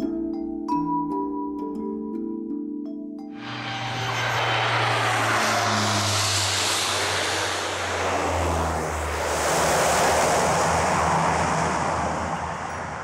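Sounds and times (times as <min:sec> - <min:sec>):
propeller aircraft engines running: 0:03.4 - 0:13.0.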